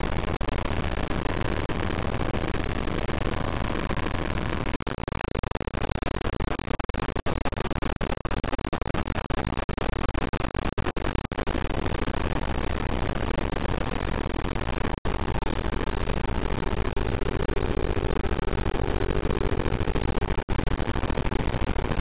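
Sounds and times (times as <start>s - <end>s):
harsh looped digital noise: 11.6s - 22.0s.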